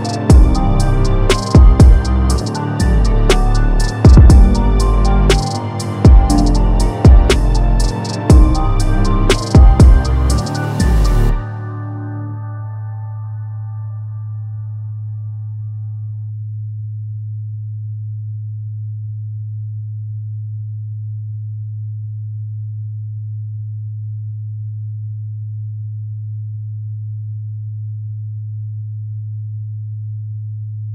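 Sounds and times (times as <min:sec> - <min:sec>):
low electronic sine tone: 0:10.8 - 0:30.9.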